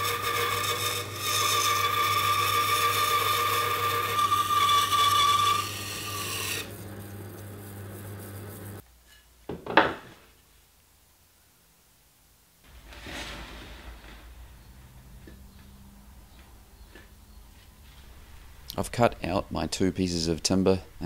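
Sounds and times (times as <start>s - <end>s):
bandsaw cutting wood: 0.0s - 8.8s
wood knocking on benchtop: 9.5s - 10.2s.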